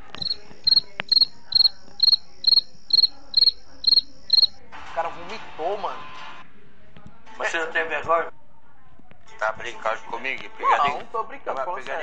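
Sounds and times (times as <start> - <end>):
cricket chirping: 0.0 - 4.6.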